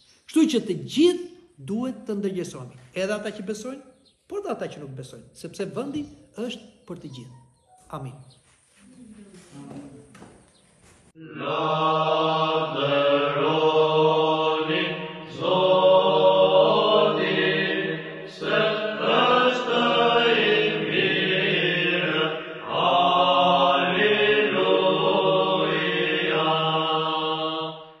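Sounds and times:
voices chanting: 11.2s - 28.0s.

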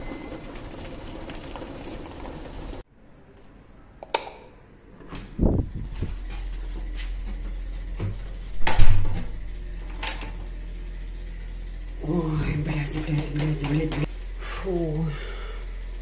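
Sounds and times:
steady low hum: 5.3s - 16.0s
wooden door opening and shutting: 8.0s - 9.3s.

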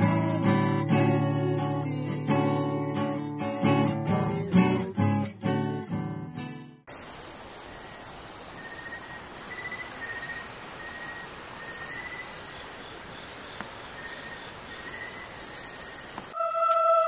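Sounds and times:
night insects chirring: 0.0s - 17.0s
steady rushing hiss: 6.9s - 16.4s.

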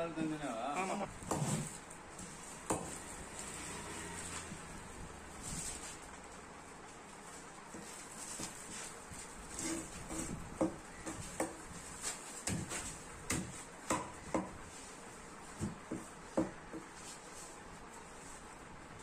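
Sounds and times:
knife chopping on wooden block: 1.2s - 1.7s, 2.6s - 3.0s, 9.6s - 11.6s, 12.4s - 14.6s.

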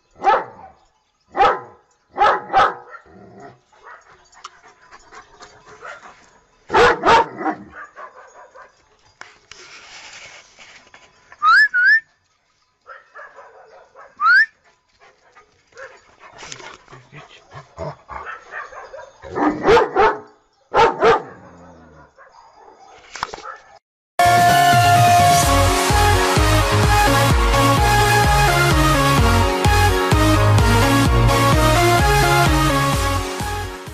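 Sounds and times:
dogs barking: 0.2s - 9.1s, 12.8s - 23.8s
dog yapping: 6.7s - 8.7s, 20.8s - 21.6s.

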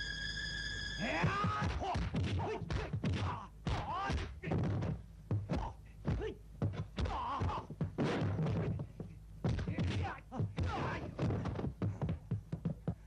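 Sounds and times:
punch and kick impacts: 1.2s - 8.8s, 9.4s - 12.2s.

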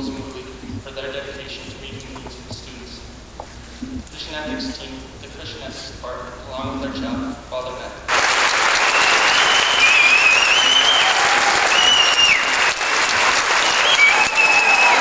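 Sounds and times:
audience applauding: 8.1s - 15.0s
crowd whistling: 8.3s - 15.0s.

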